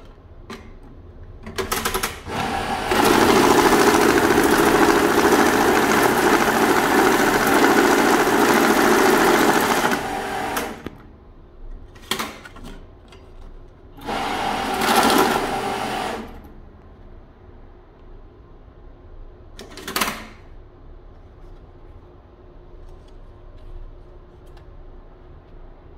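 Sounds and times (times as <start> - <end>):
banknote counting machine whirring: 2.3 - 10.9, 14.0 - 16.5.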